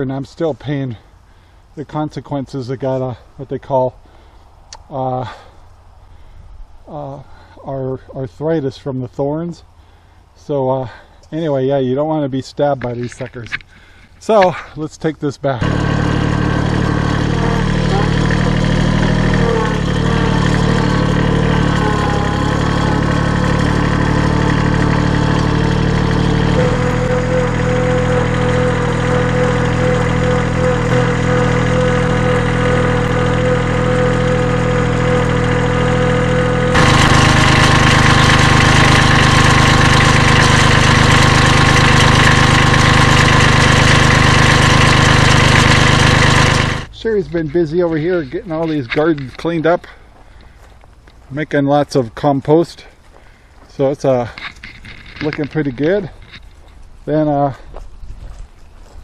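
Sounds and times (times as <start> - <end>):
tractor engine running: 15.5 - 50.6, 53.7 - 57.5
steady whine: 15.6 - 49.9.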